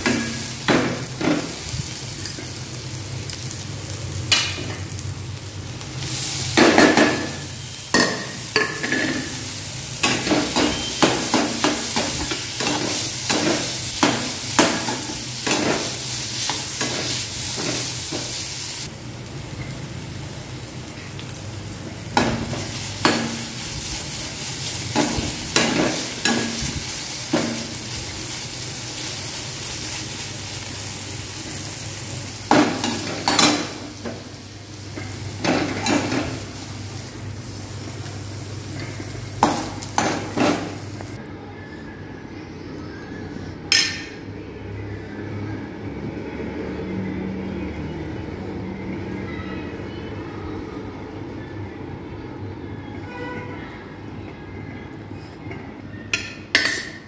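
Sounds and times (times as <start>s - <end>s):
onion sizzling in a pan: 0.0s - 41.2s.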